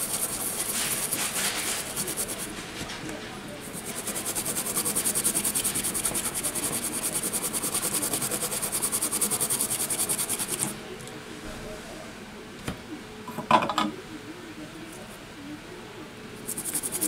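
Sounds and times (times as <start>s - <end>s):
toothbrush scrubbing circuit board: 0.0s - 2.5s, 3.7s - 10.7s, 16.4s - 17.0s.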